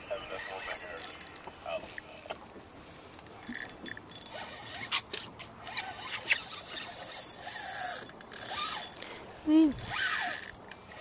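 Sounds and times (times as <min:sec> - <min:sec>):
fishing reel squeaks: 0:00.3 - 0:01.6, 0:03.1 - 0:11.0
fishing reel clicks: 0:00.7 - 0:01.5, 0:03.2 - 0:11.0.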